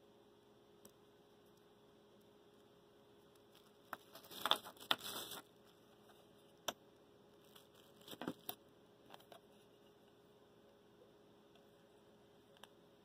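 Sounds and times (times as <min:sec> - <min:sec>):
plastic wrapping crinkling: 0:03.5 - 0:05.7, 0:07.4 - 0:08.6.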